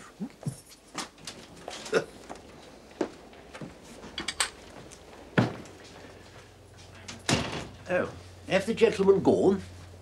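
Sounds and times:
footsteps on hard floor: 0:02.3 - 0:06.9.

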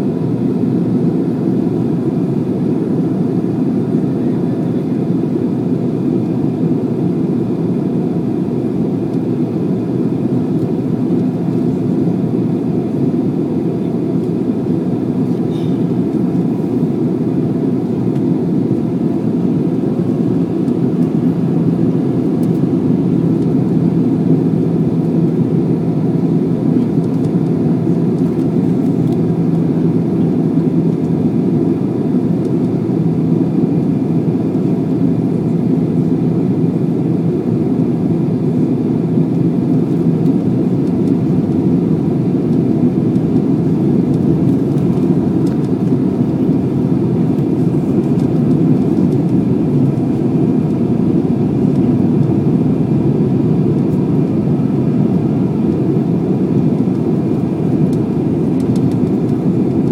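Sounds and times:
jet cabin engine and airflow noise: 0:00.0 - 0:59.9.

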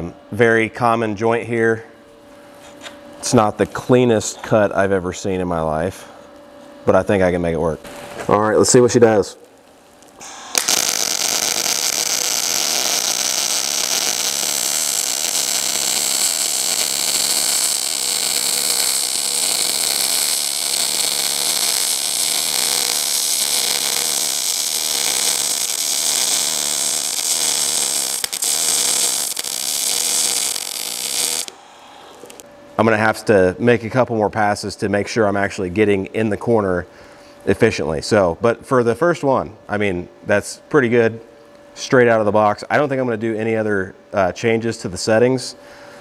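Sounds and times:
welding arc hissing: 0:07.8 - 0:32.5.

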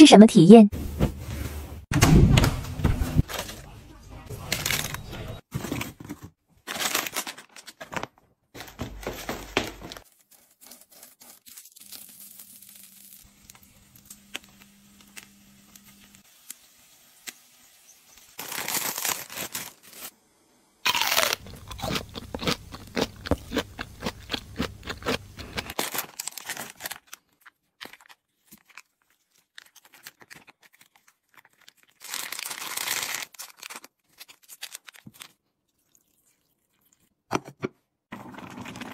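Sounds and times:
plastic packets crinkling and tearing: 0:04.3 - 0:05.1, 0:06.6 - 0:16.6, 0:18.4 - 0:20.1, 0:20.9 - 0:35.4.

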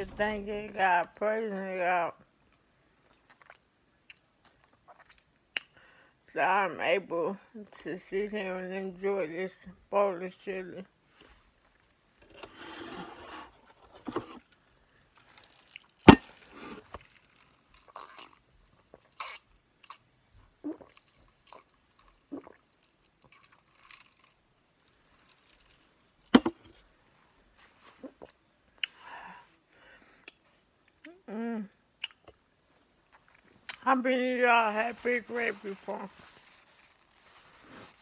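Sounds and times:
chewing and crunching chips: 0:02.5 - 0:05.8, 0:14.5 - 0:26.4
person sipping a drink: 0:03.1 - 0:05.8, 0:15.2 - 0:20.0, 0:20.6 - 0:24.4.

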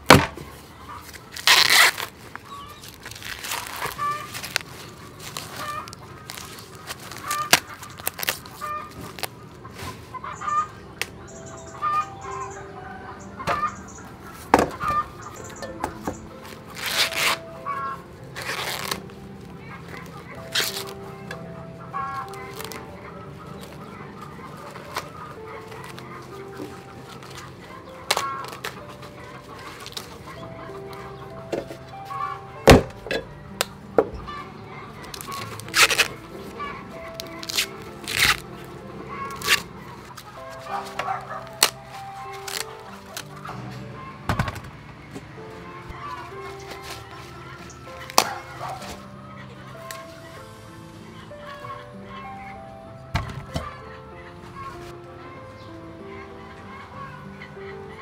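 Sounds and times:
corn husks ripping: 0:00.0 - 0:11.2, 0:14.3 - 0:33.8, 0:35.0 - 0:43.8, 0:45.4 - 0:49.1, 0:49.7 - 0:50.6
chickens clucking: 0:00.3 - 0:01.3, 0:02.4 - 0:58.0.

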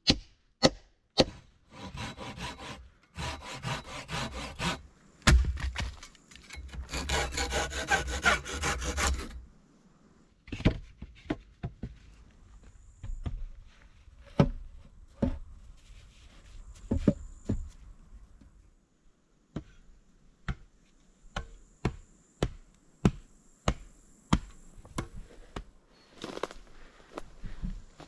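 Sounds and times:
hand tools striking wood: 0:00.0 - 0:09.2.

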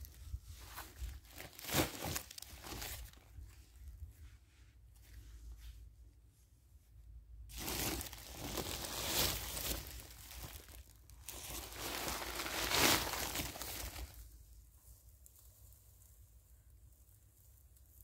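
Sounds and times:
dry grass rustling and crackling: 0:07.5 - 0:16.2.

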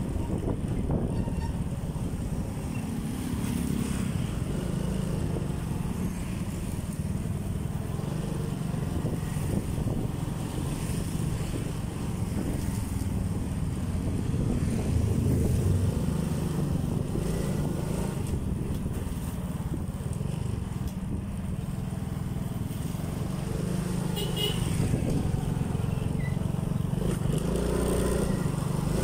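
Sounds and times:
wind on microphone: 0:00.0 - 0:21.8, 0:24.6 - 0:26.0
road noise: 0:00.0 - 0:29.0.

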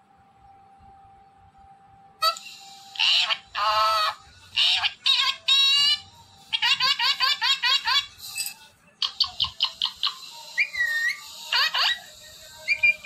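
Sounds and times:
parrot chirping: 0:02.2 - 0:13.0
parrot gliding whistles: 0:08.3 - 0:13.0.

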